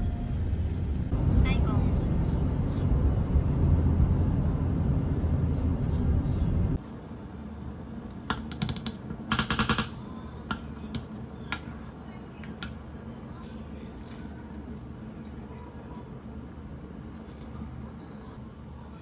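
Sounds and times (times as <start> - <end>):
loud low rumble: 0.0 - 6.8.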